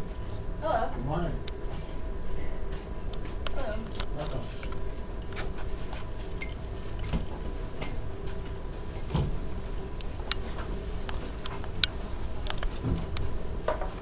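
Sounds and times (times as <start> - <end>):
light clicks and jingling: 2.7 - 9.2.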